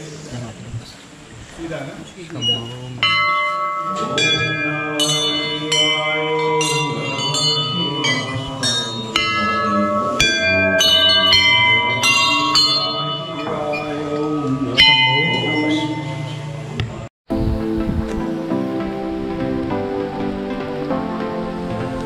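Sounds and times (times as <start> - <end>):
metal bells ringing: 2.4 - 16.8.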